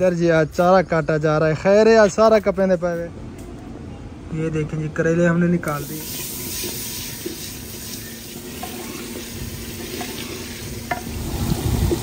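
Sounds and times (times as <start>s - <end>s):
vegetables sizzling in hot oil: 5.8s - 12.0s.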